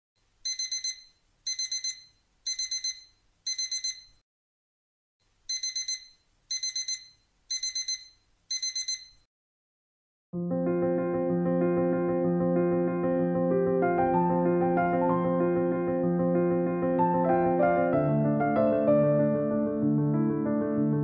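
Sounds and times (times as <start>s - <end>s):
digital alarm beeping: 0.5s - 4.2s, 5.5s - 9.2s.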